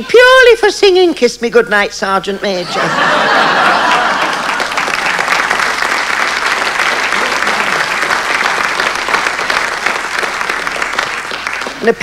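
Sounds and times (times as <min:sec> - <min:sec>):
audience applauding: 0:03.3 - 0:12.0.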